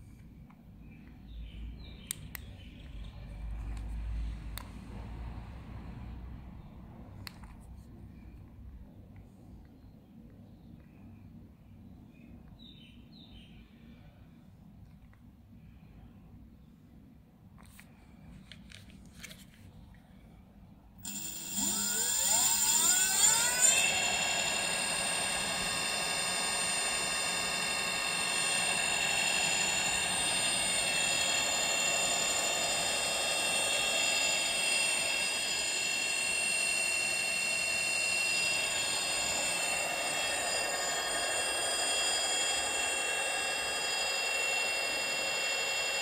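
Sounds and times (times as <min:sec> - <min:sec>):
electric motor whine: 0:21.0 - 0:46.0.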